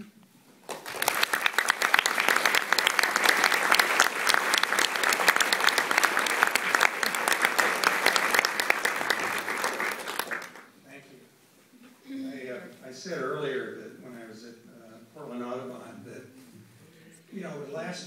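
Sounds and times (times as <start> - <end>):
audience applauding: 0.6 - 10.7.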